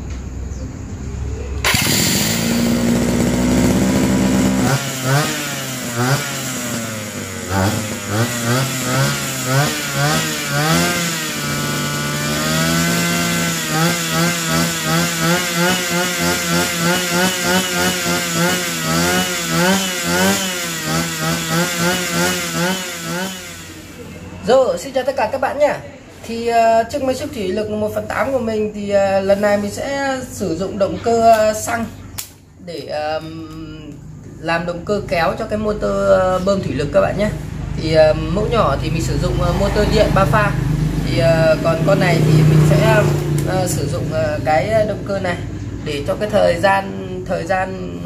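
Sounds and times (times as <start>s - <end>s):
electric starter cranking: 1.6s - 24.3s
brush-cutter engine revving: 1.6s - 24.5s, 39.2s - 44.4s.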